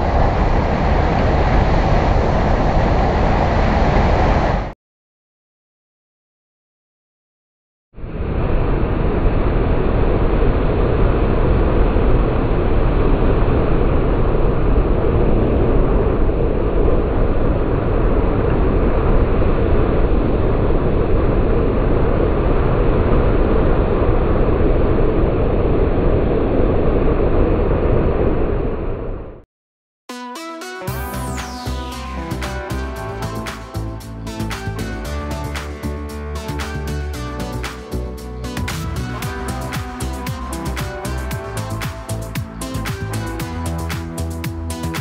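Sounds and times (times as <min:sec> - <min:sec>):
water rushing: 0:38.6 - 0:45.0.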